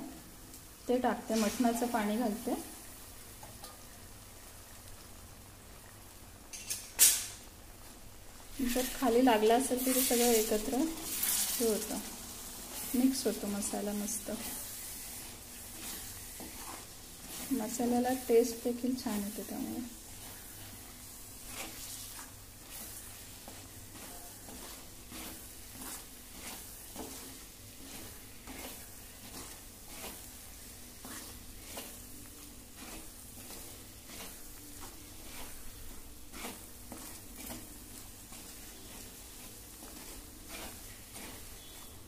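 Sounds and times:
soft sizzle of frying: 0.0s - 42.0s
wooden spatula scraping pot: 8.6s - 42.0s.

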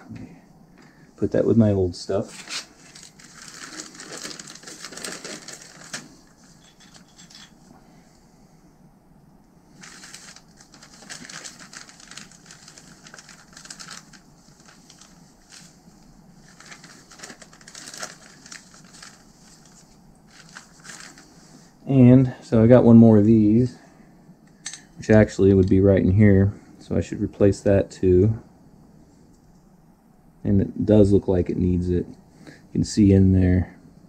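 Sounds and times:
plastic bag crinkling: 2.3s - 7.4s, 9.7s - 21.4s.

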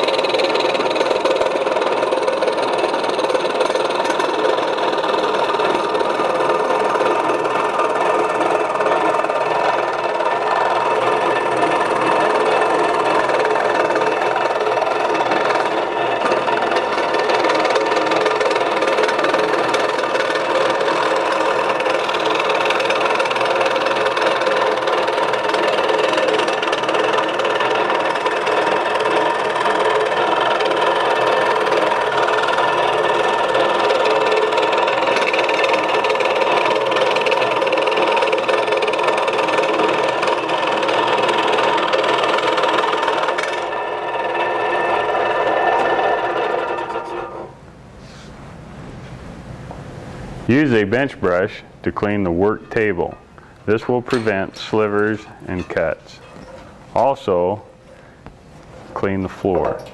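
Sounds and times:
scroll saw cutting wood: 0.0s - 47.6s.

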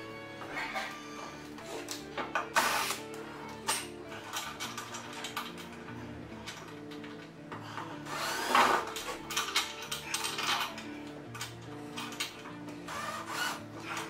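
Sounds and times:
metal parts clicking: 0.5s - 7.4s, 8.3s - 14.0s
drill driving screws: 2.4s - 3.2s, 8.0s - 9.2s, 12.8s - 14.0s.

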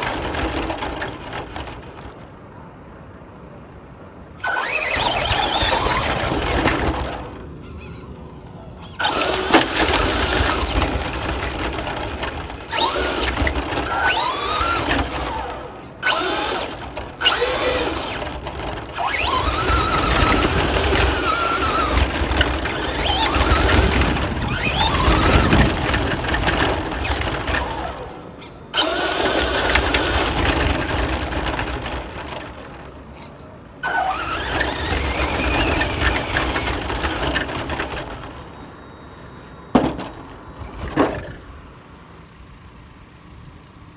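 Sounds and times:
car rumbling over dirt: 0.0s - 43.6s
rc car motor whining: 4.4s - 7.9s, 8.8s - 39.1s.

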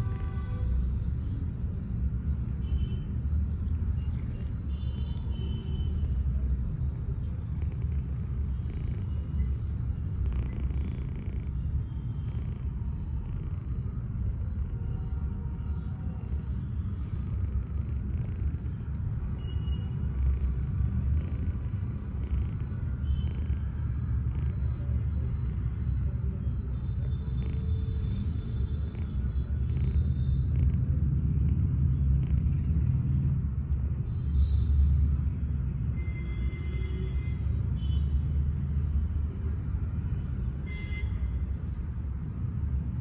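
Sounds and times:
kitten purring: 2.1s - 14.8s, 17.1s - 19.1s, 20.1s - 24.8s, 27.3s - 27.7s, 28.8s - 32.9s.

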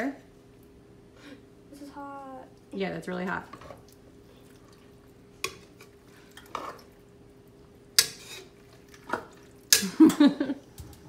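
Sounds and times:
spoon stirring food in pot: 5.4s - 7.0s, 7.8s - 10.0s.

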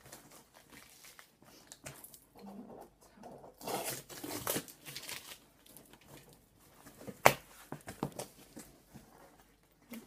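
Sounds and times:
cardboard tearing: 3.6s - 5.5s.

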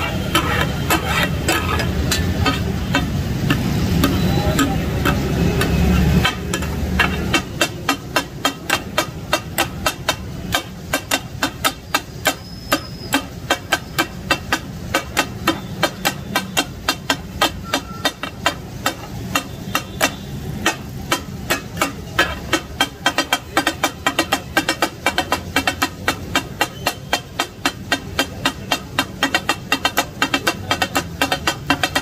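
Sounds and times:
metal blades clattering on griddle: 0.0s - 15.2s
steaming liquid hissing: 0.0s - 32.0s.

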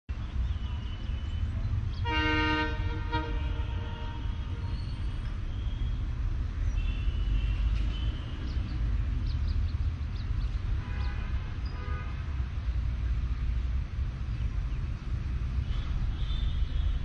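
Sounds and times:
distant train horn: 2.0s - 5.0s, 10.8s - 12.3s.

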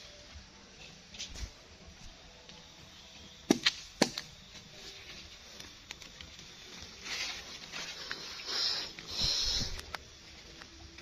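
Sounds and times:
machete chopping into wood: 3.5s - 4.3s
dry fronds rustling underfoot: 3.5s - 11.0s.

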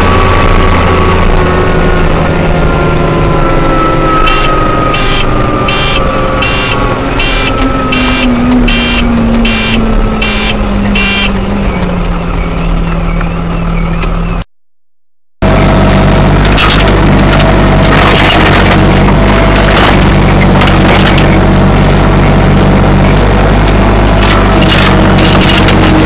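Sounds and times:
tractor diesel engine: 0.0s - 14.5s, 15.4s - 26.0s
repeated beeping: 3.4s - 14.4s.

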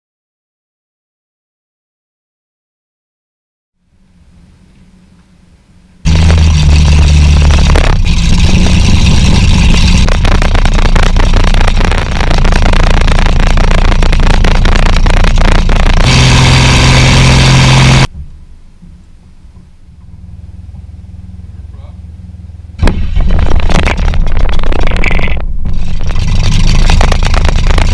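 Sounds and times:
aircraft engine running: 4.8s - 18.1s, 18.9s - 27.9s.

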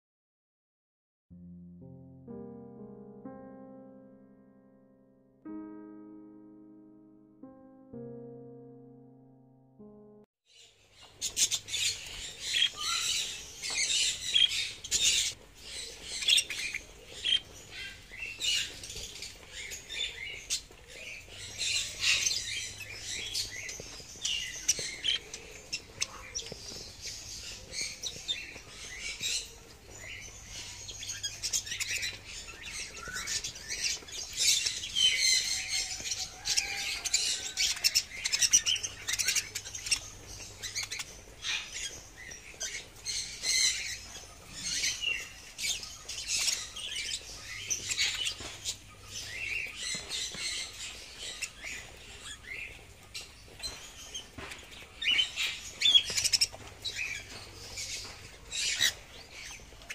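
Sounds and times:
budgerigars chattering and squawking: 11.0s - 59.9s.

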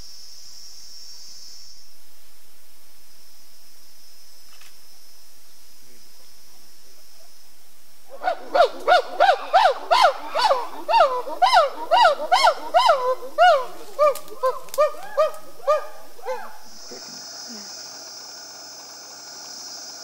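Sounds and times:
chimpanzee hooting: 8.1s - 17.8s.

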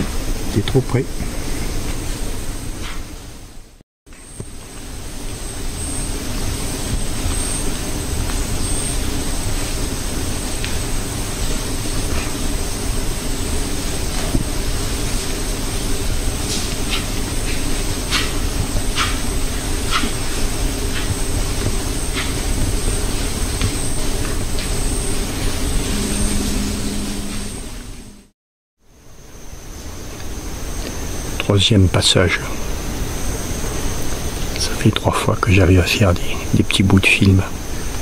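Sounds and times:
high insect whine: 0.0s - 38.0s
rumbling hiss of herd: 4.6s - 26.0s.

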